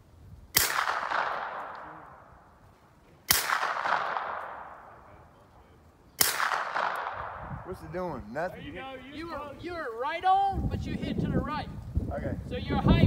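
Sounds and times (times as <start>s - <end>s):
rifle shot with echo: 0.5s - 2.4s, 3.3s - 5.2s, 6.2s - 7.6s.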